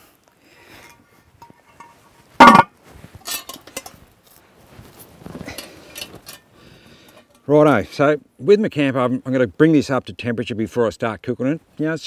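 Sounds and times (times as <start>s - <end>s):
metal clinks and scraping: 0.8s - 4.0s, 5.4s - 6.5s
iron lid clanking onto pot: 1.7s - 2.7s.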